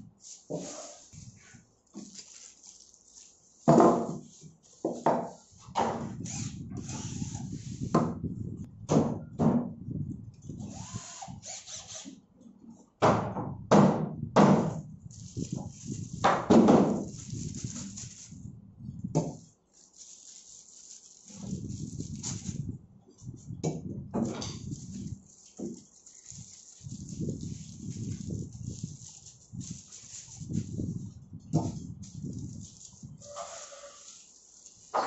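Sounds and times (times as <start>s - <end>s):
plastic bag rustling: 0.0s - 4.8s, 14.8s - 18.6s, 19.3s - 35.0s
objects knocking on plywood box: 3.7s - 4.3s, 16.3s - 17.0s.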